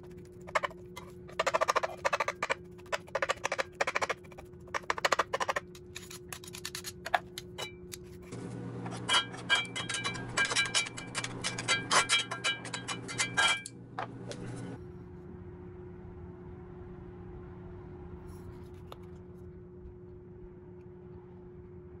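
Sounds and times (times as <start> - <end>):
utensils clinking against cookware: 8.9 - 13.7.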